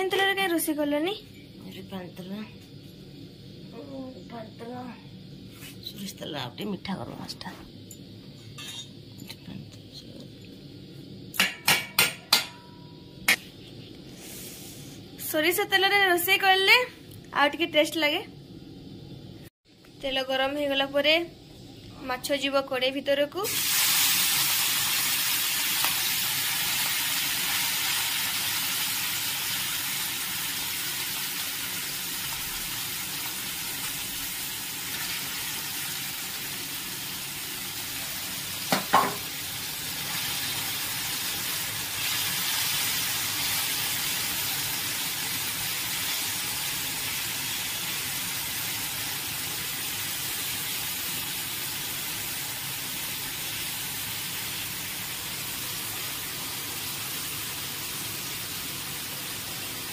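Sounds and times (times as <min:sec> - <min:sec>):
fish sizzling in hot oil: 0:23.4 - 0:59.9.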